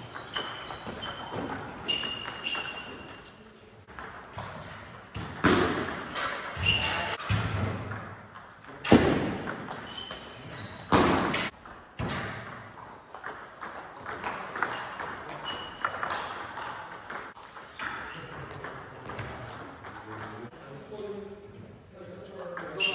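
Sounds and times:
shoes squeaking: 0.0 - 4.8, 6.1 - 7.8, 9.7 - 11.6, 13.5 - 18.5, 22.6 - 22.9.

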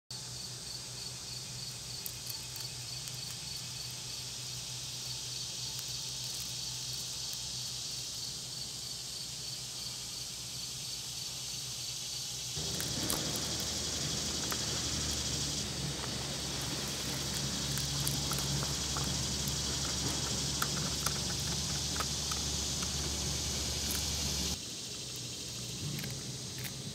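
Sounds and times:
insects chirping: 0.1 - 26.9
low rumble: 12.6 - 24.6.

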